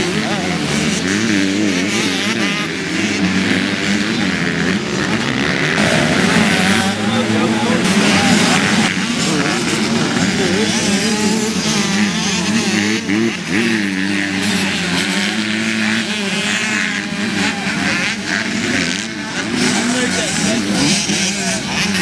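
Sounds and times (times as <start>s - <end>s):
dirt bike engines revving: 0.0s - 22.0s.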